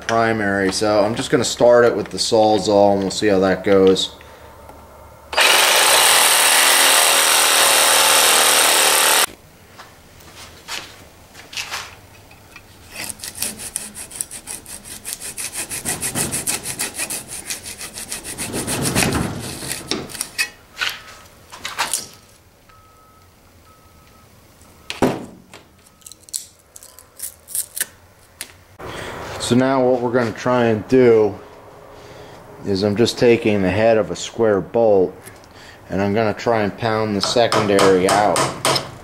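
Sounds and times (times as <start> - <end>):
hacksaw sawing: 5.3 - 9.3, 12.8 - 20.6
reciprocating saw cutting: 5.3 - 9.3, 12.9 - 20.4.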